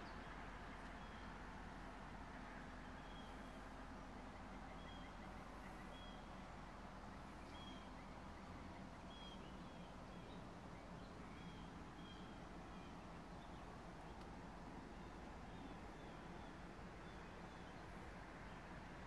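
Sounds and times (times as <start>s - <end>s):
bird chirping: 7.1s - 14.2s.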